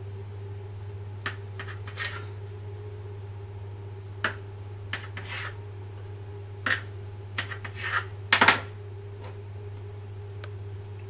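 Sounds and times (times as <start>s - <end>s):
steady low hum: 0.0s - 11.0s
blade scraping and tapping countertop: 1.2s - 2.3s, 4.2s - 5.6s, 6.6s - 8.6s
knife cutting through dough: 1.2s - 2.3s, 4.2s - 5.6s, 6.6s - 8.1s.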